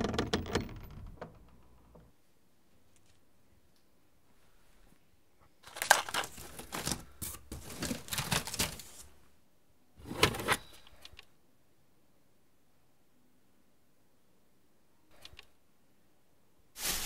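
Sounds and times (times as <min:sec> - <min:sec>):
plastic cassettes clattering: 0:05.6 - 0:09.1.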